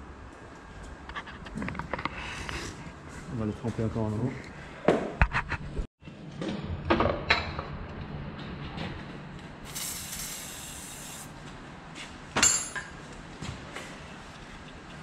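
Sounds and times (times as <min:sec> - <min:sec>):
aerosol spray hissing: 0:09.7 - 0:11.3
metal knocks and clinks: 0:12.4 - 0:13.0.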